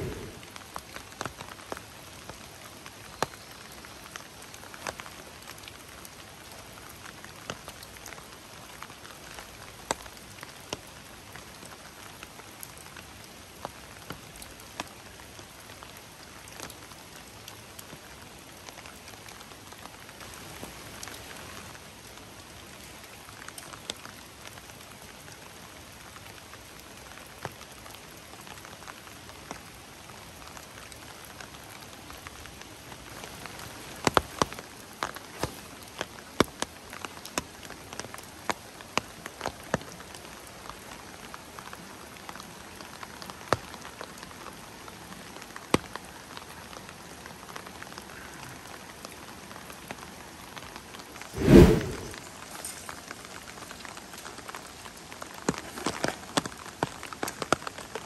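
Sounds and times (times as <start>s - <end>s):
heavy rain hissing: 0.0s - 0.8s
raindrops striking close by: 0.0s - 51.1s, 52.2s - 58.0s.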